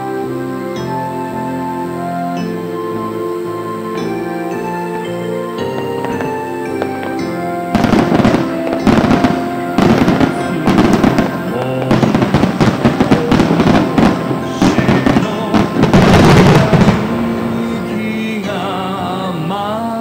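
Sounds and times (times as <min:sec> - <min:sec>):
music: 0:00.0 - 0:20.0
fireworks bangs and crackles: 0:05.6 - 0:18.7.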